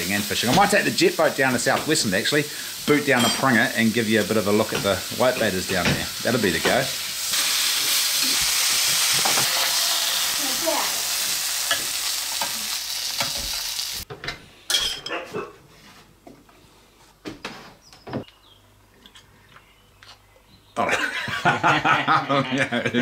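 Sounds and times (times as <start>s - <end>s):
fish sizzling in a frying pan: 0.0s - 14.1s.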